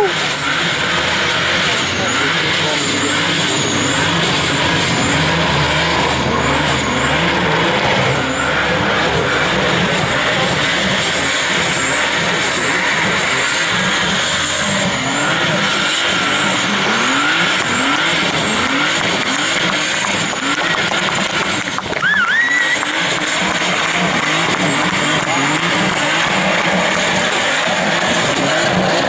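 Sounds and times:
car engine revving hard: 0:00.0 - 0:29.0
tyres squealing: 0:00.0 - 0:29.0
short rising whistle: 0:22.0 - 0:23.0.

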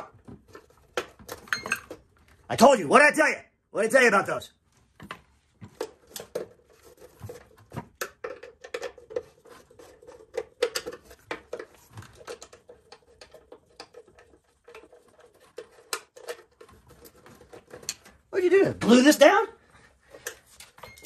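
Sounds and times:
hands working plastic box cover: 0:00.0 - 0:02.5, 0:04.8 - 0:19.0.

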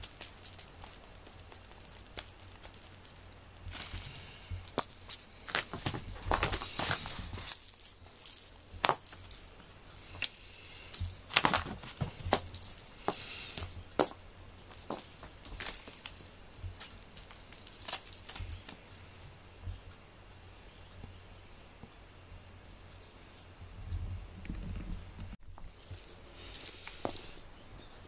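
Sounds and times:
light metallic jingling: 0:00.0 - 0:19.5, 0:25.6 - 0:27.6.

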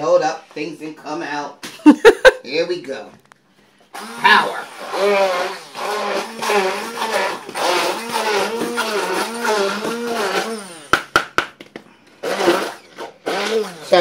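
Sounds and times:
stick blender chopping vegetables: 0:04.0 - 0:14.0.

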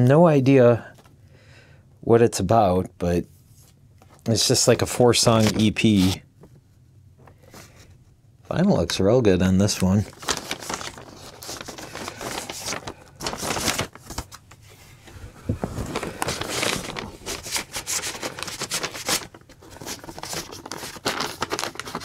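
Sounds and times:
paper and cardboard sleeves rustling: 0:03.4 - 0:06.2, 0:09.6 - 0:22.0.

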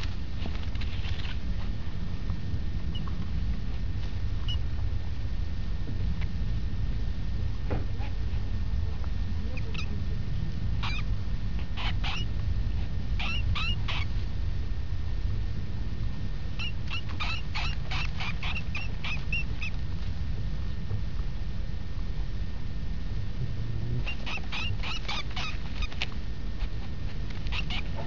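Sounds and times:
low rumble: 0:00.0 - 0:16.9, 0:17.5 - 0:28.0
mouse squeaking: 0:02.9 - 0:03.2, 0:04.4 - 0:04.6, 0:09.5 - 0:10.0, 0:10.8 - 0:12.3, 0:13.2 - 0:14.1, 0:16.6 - 0:19.8, 0:24.0 - 0:28.0.

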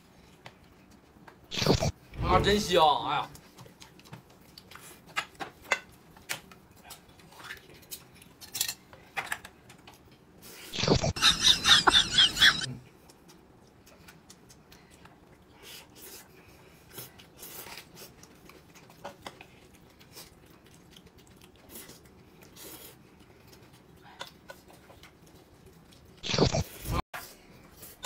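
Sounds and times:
faint chewing: 0:03.3 - 0:10.7, 0:12.7 - 0:28.0.

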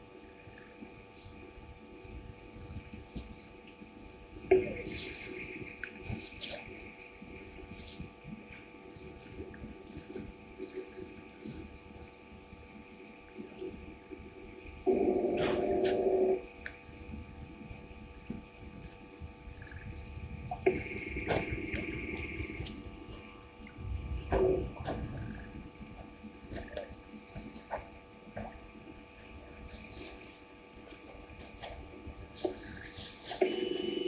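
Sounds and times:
frogs calling: 0:00.0 - 0:34.0
insects trilling: 0:00.0 - 0:34.0
loud low animal call: 0:14.9 - 0:16.4.

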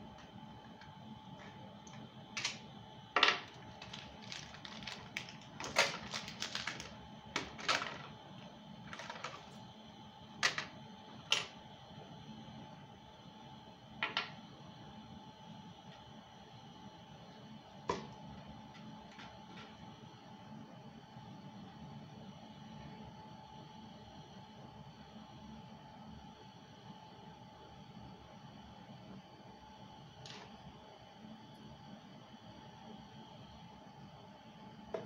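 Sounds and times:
batteries clicking and tapping: 0:03.3 - 0:08.1.

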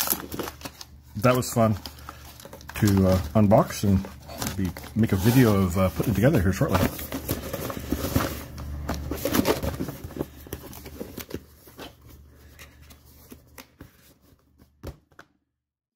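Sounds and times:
cardboard box rustling: 0:02.4 - 0:14.1.

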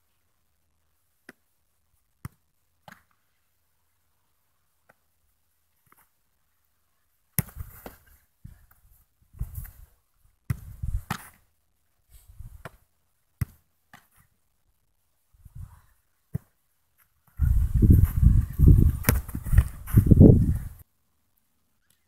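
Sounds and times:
football kicks: 0:07.4 - 0:08.0, 0:10.5 - 0:11.4, 0:18.8 - 0:20.6.

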